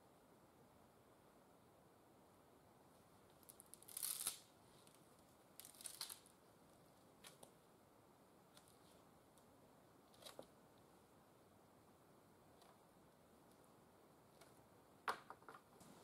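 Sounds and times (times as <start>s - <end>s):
dry leaves and sticks crackling: 3.4s - 5.0s, 5.6s - 6.3s.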